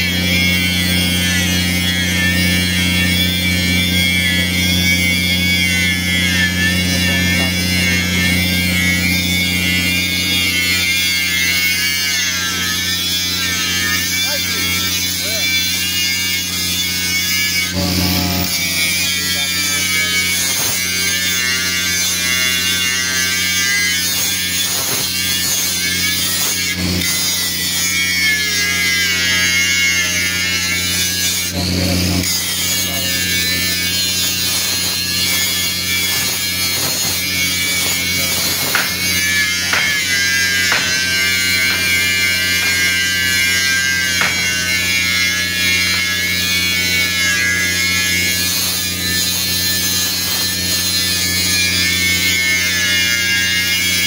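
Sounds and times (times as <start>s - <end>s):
angle grinder grinding metal: 0.0s - 54.0s
steady low hum: 17.8s - 20.4s, 30.8s - 46.0s.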